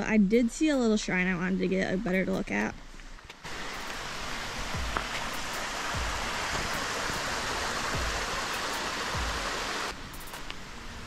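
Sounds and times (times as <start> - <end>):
stream rushing over rocks: 3.5 - 11.0
soft low thumps: 4.7 - 6.8, 7.8 - 8.4.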